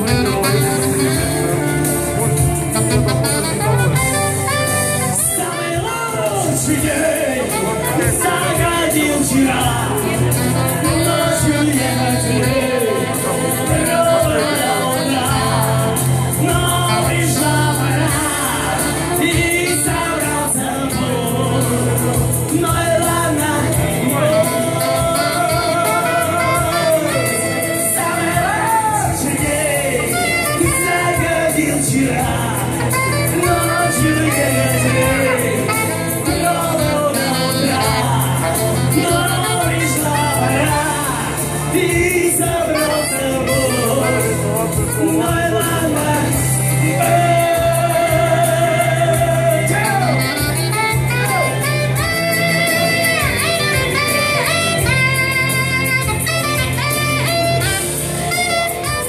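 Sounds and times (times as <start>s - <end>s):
alto saxophone: 0.0s - 59.0s
man singing: 0.0s - 59.0s
pop backing track: 0.0s - 59.0s.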